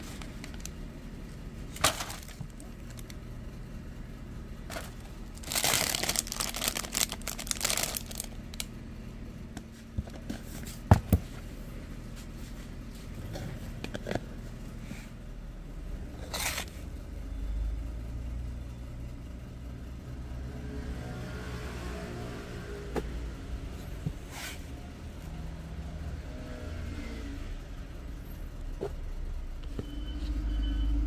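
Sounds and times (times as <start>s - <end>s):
steady low rumble: 0.0s - 9.6s.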